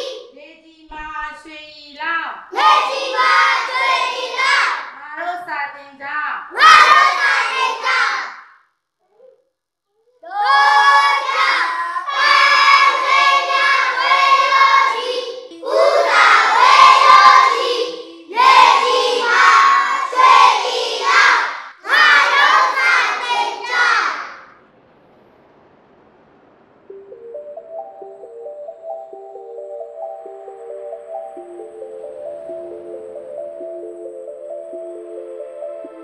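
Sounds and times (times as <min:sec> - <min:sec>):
children singing in unison: 0:00.0 - 0:00.3, 0:02.5 - 0:04.9, 0:06.6 - 0:08.4, 0:10.3 - 0:24.4.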